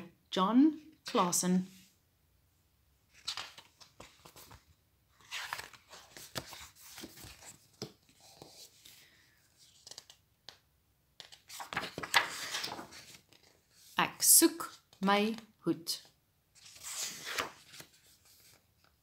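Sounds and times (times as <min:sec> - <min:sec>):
paper pages rustling and turning: 0:03.1 - 0:10.6, 0:11.2 - 0:14.0, 0:16.6 - 0:19.0.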